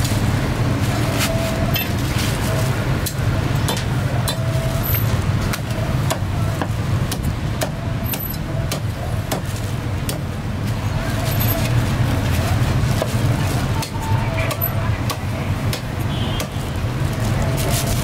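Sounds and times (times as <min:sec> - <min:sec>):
street traffic rumble: 0:00.0 - 0:18.0
cleaver chopping on wooden block: 0:05.5 - 0:10.3.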